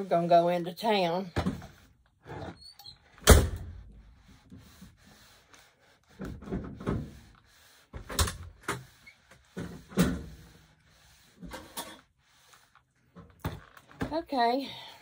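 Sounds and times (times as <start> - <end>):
iron knocking and scraping on mat: 6.1 - 10.6.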